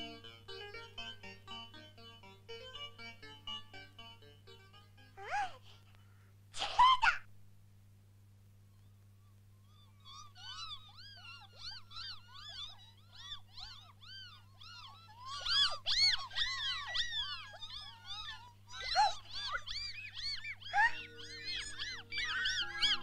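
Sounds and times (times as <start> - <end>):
cartoon baby birds cheeping: 9.6 - 23.0.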